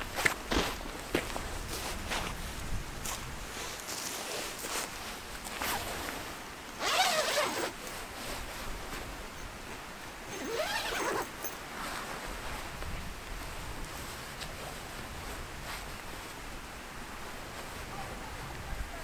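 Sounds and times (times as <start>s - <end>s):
tent zipper pulled: 5.5s - 6.1s, 6.8s - 8.5s, 10.3s - 12.1s.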